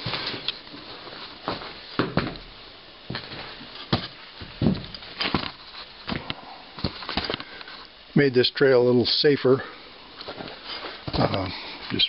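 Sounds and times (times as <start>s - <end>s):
footsteps crunching on snow: 0.0s - 2.4s.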